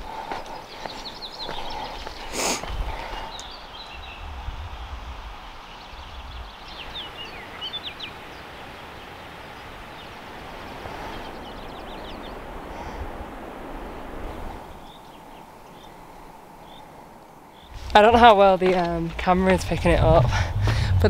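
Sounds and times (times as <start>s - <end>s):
small birds chirping: 0.0s - 13.0s, 14.8s - 21.0s
low rumble: 17.7s - 21.0s.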